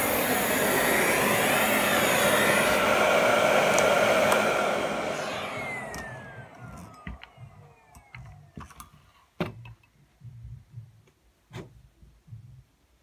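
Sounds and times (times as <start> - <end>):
vacuum cleaner motor winding down: 0.0 - 8.7.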